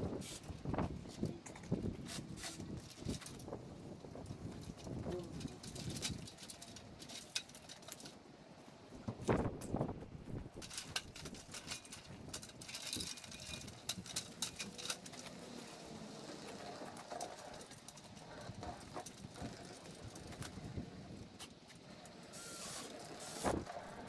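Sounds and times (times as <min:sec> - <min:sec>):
metal ladder clicks and knocks: 0:10.6 - 0:15.6.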